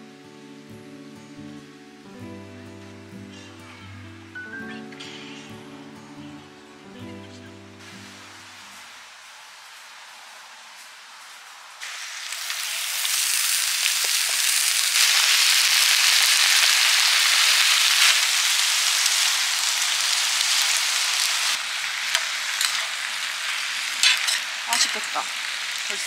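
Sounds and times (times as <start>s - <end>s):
food sizzling on a griddle: 7.8s - 26.0s.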